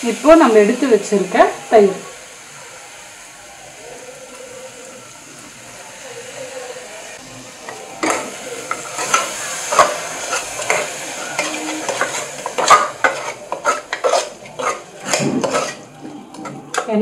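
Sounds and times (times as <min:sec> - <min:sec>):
spices sizzling in a pot: 0:00.0 - 0:17.0
metal ladle scraping a pot: 0:08.0 - 0:16.5.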